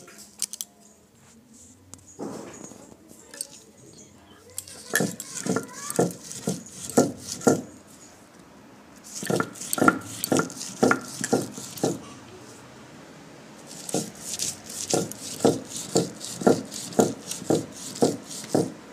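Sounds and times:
stone pestle scraping grinding stone: 4.7 - 7.8, 9.0 - 12.0, 13.6 - 18.8.

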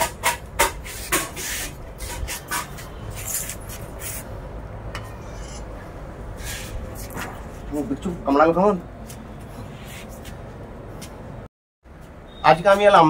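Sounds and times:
scraping on concrete floor: 0.0 - 4.3, 4.9 - 5.7.

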